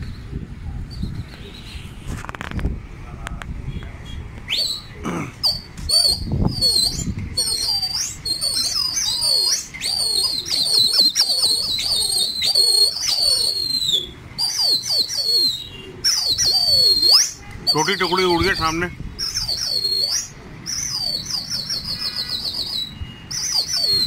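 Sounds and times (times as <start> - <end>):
shrill human whistling: 4.5 - 18.8, 19.4 - 24.0.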